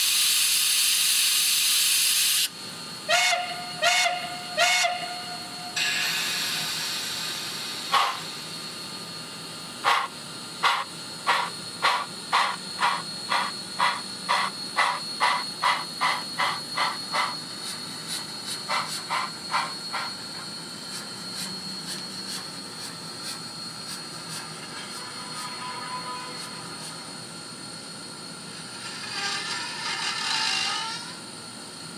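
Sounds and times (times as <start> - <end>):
steam exhaust chuffs: 9.7 - 27.0.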